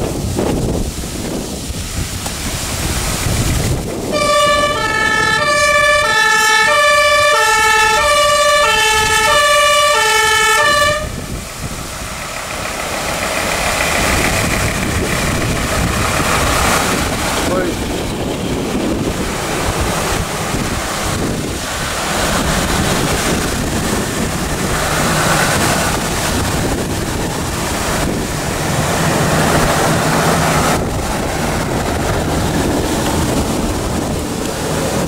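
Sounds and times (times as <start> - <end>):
passing vehicle engines rumbling: 0.0 - 35.0
wind buffeting microphone: 0.0 - 35.0
two-tone fire engine siren: 4.1 - 11.4.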